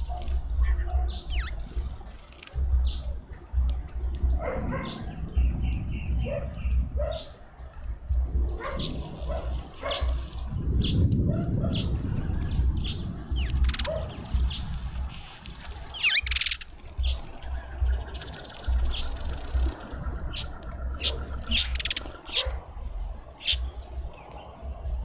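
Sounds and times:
dog barking: 0.0s - 1.3s, 4.4s - 5.1s, 6.2s - 7.4s, 8.6s - 10.2s, 11.3s - 11.9s, 13.8s - 14.2s, 22.3s - 22.7s
small birds chirping: 0.0s - 25.0s.

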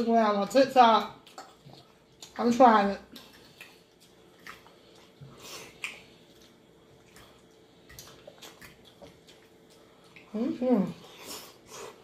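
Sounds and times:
faint steady hum: 0.0s - 12.0s
chewing and mouth smacks: 1.0s - 10.4s.

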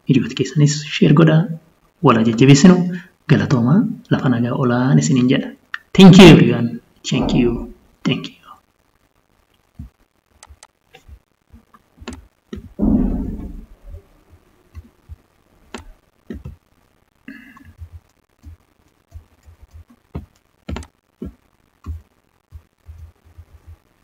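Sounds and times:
computer mouse clicks and knocks: 10.4s - 11.1s, 11.7s - 12.7s, 18.4s - 22.0s.

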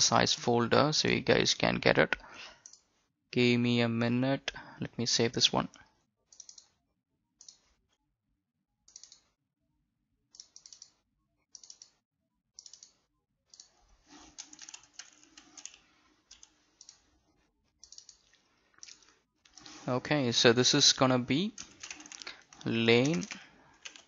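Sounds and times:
computer keyboard typing: 6.3s - 6.7s, 8.9s - 9.3s, 10.4s - 12.0s, 12.6s - 17.1s, 17.8s - 19.8s, 21.1s - 24.0s.

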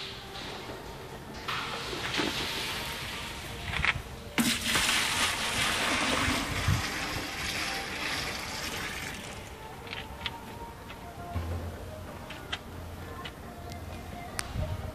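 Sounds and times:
water splashing from a bucket: 4.4s - 9.5s.

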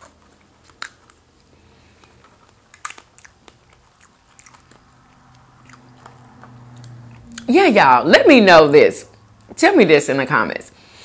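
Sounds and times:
soft chewing: 0.0s - 7.5s.

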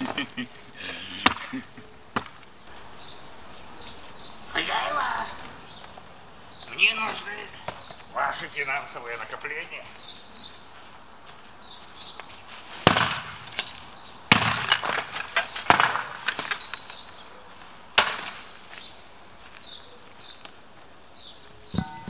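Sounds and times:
clattering knocks and crashes: 21.8s - 22.0s.

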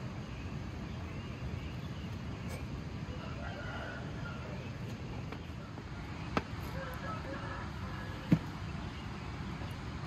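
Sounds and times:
outdoor background noise: 0.0s - 10.0s
rooster crowing: 3.1s - 4.7s, 6.6s - 8.4s.

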